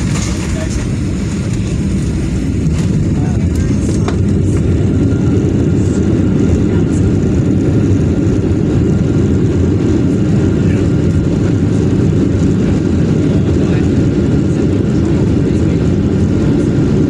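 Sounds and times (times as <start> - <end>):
jet engine and wheel rumble: 0.0 - 17.0.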